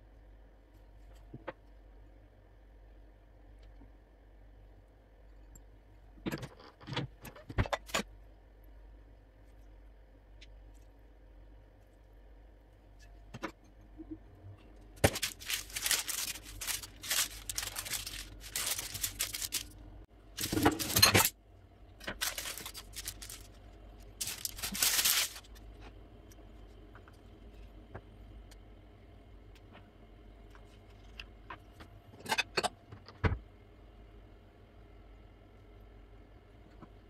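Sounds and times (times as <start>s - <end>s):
baking paper crinkling: 15.0s - 19.8s, 20.4s - 21.3s, 22.0s - 25.6s.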